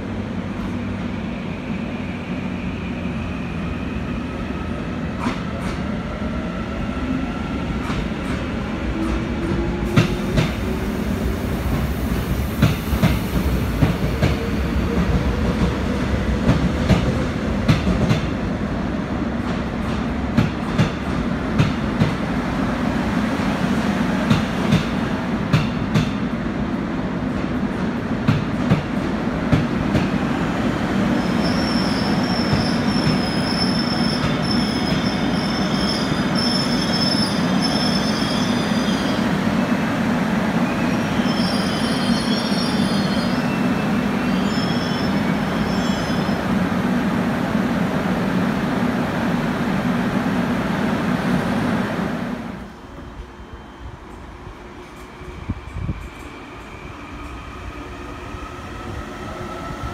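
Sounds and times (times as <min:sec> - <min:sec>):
low train rumble: 0:00.0 - 0:59.9
high brake squeal: 0:31.1 - 0:39.3, 0:40.6 - 0:46.4.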